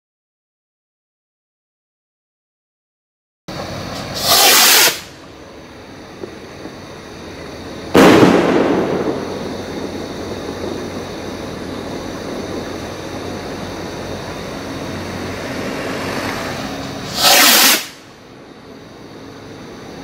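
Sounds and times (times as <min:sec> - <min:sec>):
firework rocket whoosh: 0:03.5 - 0:05.3, 0:06.0 - 0:18.2
rocket hiss: 0:03.5 - 0:18.2
steady rushing noise: 0:03.5 - 0:20.0.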